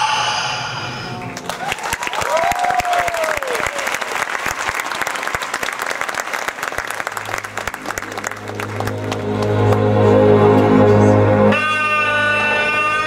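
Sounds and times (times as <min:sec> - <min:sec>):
audience applauding: 0:01.2 - 0:10.7
low droning music intro: 0:07.2 - 0:13.0.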